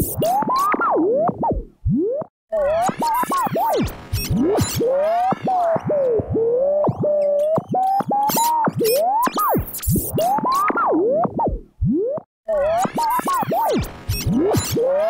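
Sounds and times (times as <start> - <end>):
radio tuning whistles: 2.8 - 10.8, 13.0 - 15.0.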